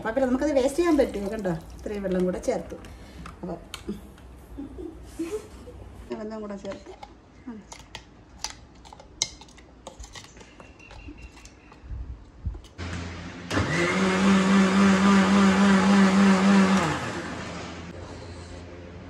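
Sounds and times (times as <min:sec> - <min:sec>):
mixer grinder motor running: 0:12.8 - 0:17.9.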